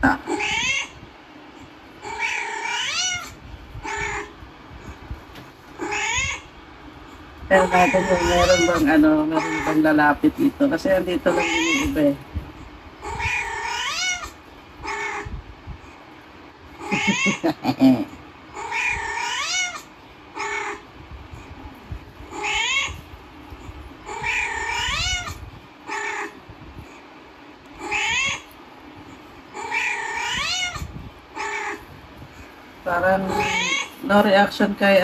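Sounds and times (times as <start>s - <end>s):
recorded cat meows: 0.0s - 1.0s, 2.0s - 4.3s, 7.7s - 8.8s, 24.1s - 26.4s, 27.8s - 28.5s, 29.6s - 31.8s, 33.3s - 33.9s.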